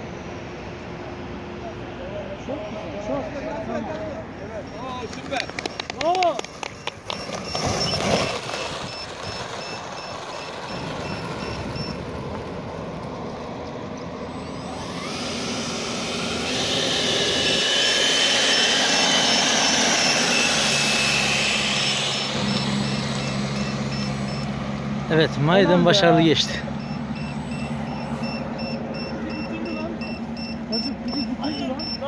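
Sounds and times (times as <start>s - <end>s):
faint quick repeating beep: 6.8s - 12.0s, 26.8s - 32.0s
electric ducted fan whine: 8.2s - 32.0s.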